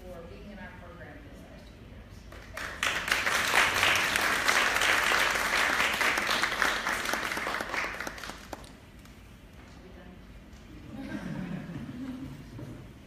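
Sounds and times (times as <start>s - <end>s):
audience applauding: 2.5s - 8.8s.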